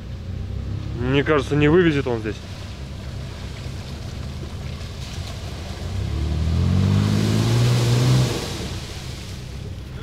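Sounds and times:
engine revving under load: 5.3s - 9.4s.

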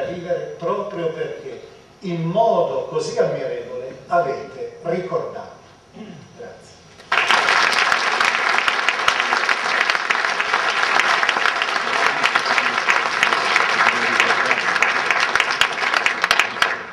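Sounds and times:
audience applauding: 7.0s - 16.9s.

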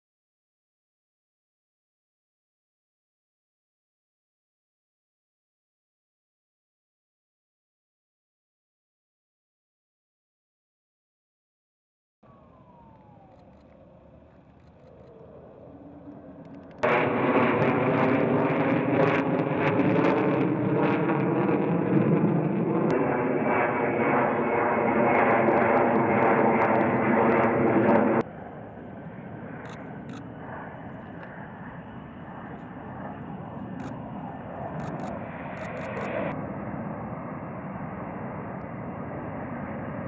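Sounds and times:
jet engine noise: 12.2s - 40.0s.

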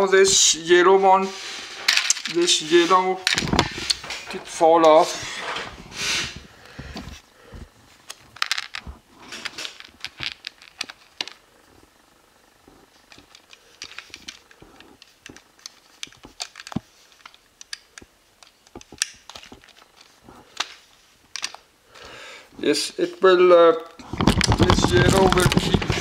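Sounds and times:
plastic bricks clicking together: 8.1s - 11.4s, 13.0s - 21.6s.

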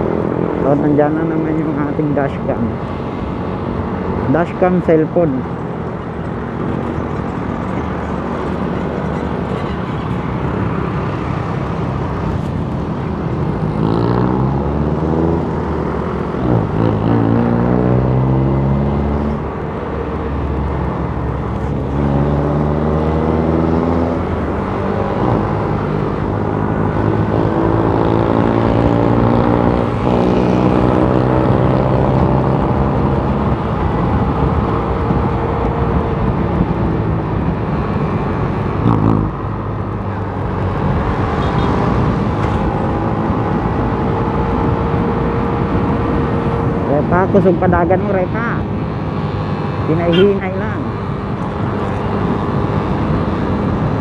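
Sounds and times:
wind and road noise: 0.0s - 54.0s
motorcycle engine accelerating: 13.1s - 19.5s, 21.2s - 54.0s.

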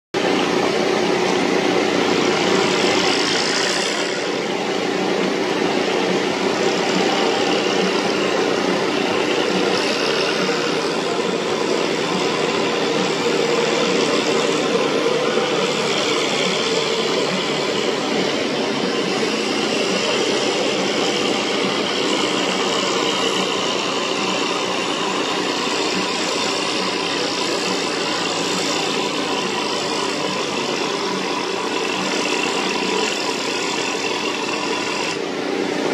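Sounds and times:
tractor engine under heavy load: 0.2s - 35.9s.

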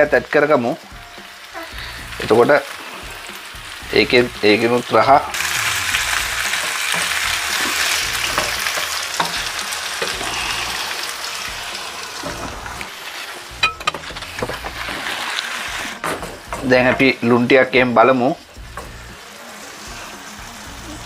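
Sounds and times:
food sizzling in a frying pan: 0.0s - 21.0s
wooden spoon scraping a pan: 5.3s - 17.2s.

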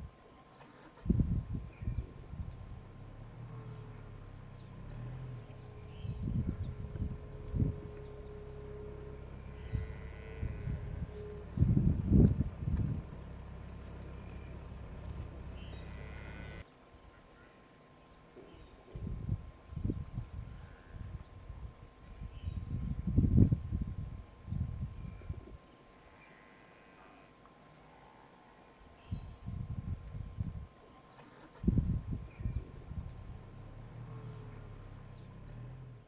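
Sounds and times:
faint bird chirping: 0.0s - 36.0s
insect chirping: 0.0s - 36.0s
steady low rumble: 0.9s - 16.6s, 31.6s - 36.0s.

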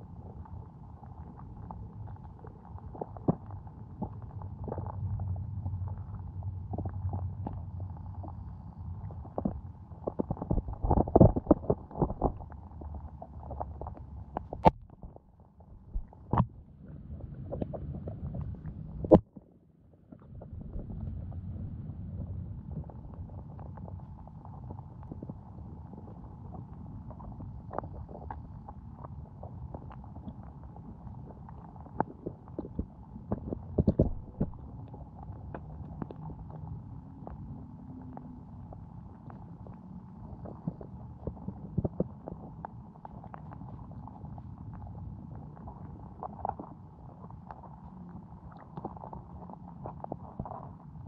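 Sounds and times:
muffled underwater water murmur: 0.0s - 51.0s
fish knocking on camera: 33.4s - 34.6s.

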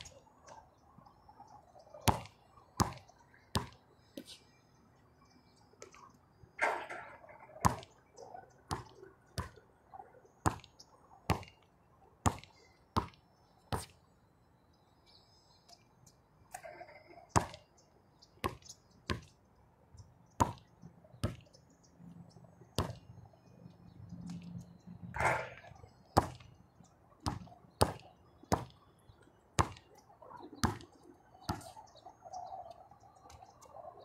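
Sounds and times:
basketball bouncing on hard court: 3.6s - 3.8s, 7.6s - 7.9s, 27.2s - 28.7s, 29.6s - 29.8s.

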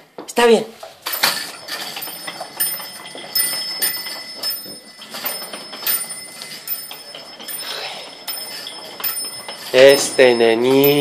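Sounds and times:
plastic toy wheels rolling on floor: 1.1s - 11.0s
toy clacks: 1.1s - 11.0s.

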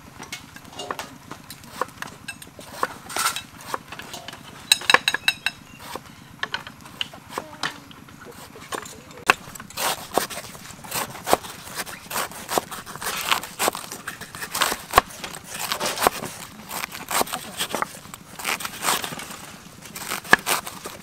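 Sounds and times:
knives slicing vegetables: 2.6s - 3.9s, 5.8s - 6.0s, 8.3s - 21.0s.

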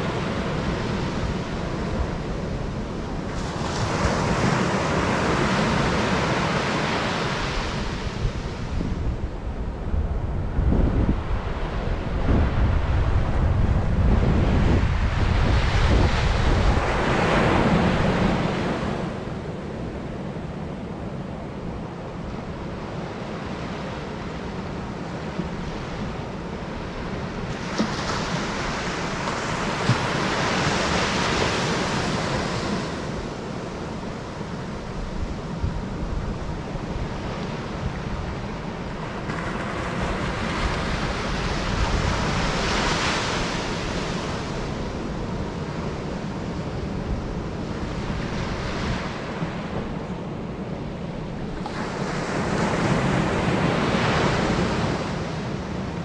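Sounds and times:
wind buffeting microphone: 0.0s - 23.2s, 24.8s - 56.0s.

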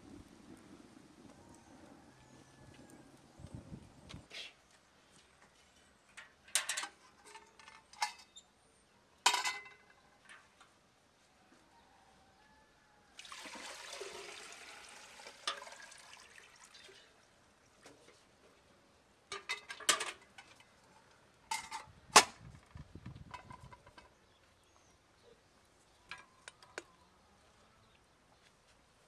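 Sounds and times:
water pouring into metal vessel: 13.2s - 17.3s.

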